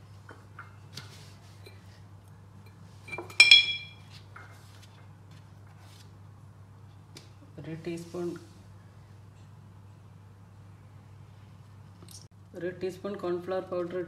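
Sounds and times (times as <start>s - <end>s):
spoon clinking against dish: 3.1s - 4.0s.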